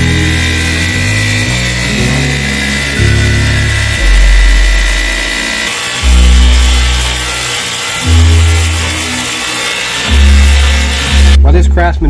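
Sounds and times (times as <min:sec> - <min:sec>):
background music with deep bass: 0:00.0 - 0:09.3
pressure washer spraying water: 0:00.0 - 0:11.4.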